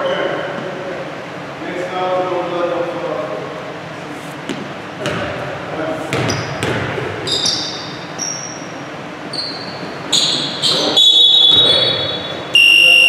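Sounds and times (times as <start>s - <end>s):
basketball bouncing on wooden floor: 5.0s - 5.4s, 6.1s - 7.0s
sneaker squeaks on floor: 6.1s - 13.0s.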